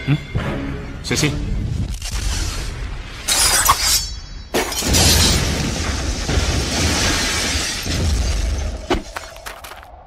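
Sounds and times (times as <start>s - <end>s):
rumble of debris: 4.5s - 10.0s.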